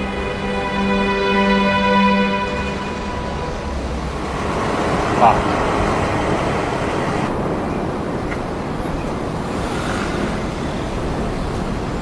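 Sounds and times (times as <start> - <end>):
road traffic: 0.0 - 12.0
wind on microphone: 2.9 - 12.0.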